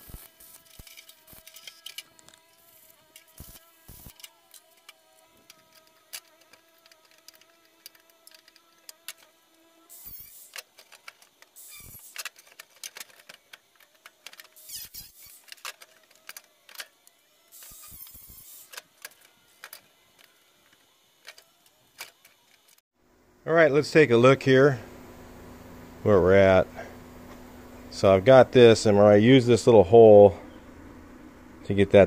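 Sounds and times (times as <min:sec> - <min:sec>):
short bursts of hiss: 0:00.0 - 0:04.5, 0:09.9 - 0:10.7, 0:11.6 - 0:12.3, 0:17.5 - 0:18.8
hand tools handled: 0:00.0 - 0:22.8.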